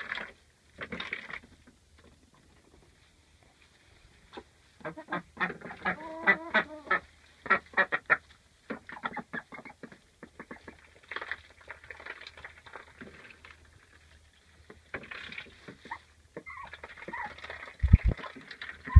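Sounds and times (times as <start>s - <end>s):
duck quacking: 4.8s - 10.7s.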